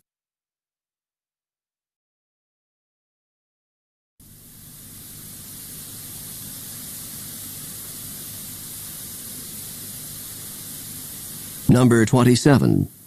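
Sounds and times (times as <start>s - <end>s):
steady background hiss: 4.2s - 13.0s.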